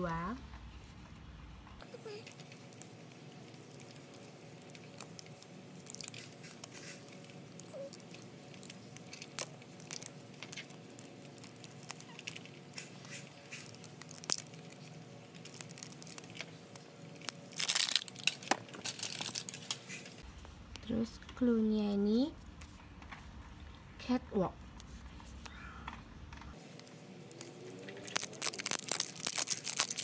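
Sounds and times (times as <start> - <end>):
plastic wrapper crinkling: 1.8 - 20.2, 26.6 - 30.0
plastic tearing: 2.0 - 20.2, 26.6 - 30.0.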